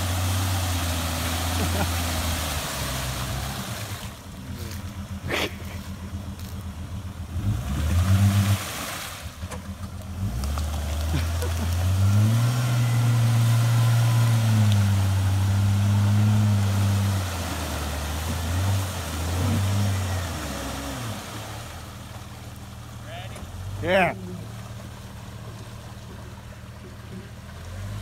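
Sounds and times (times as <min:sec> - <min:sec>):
engine revving: 0:00.0 - 0:06.5, 0:07.2 - 0:22.2
tyres churning through muddy water: 0:00.0 - 0:28.0.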